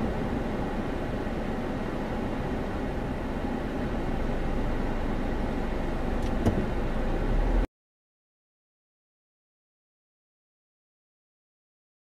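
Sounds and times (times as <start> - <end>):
car engine and road rumble: 0.0 - 7.7.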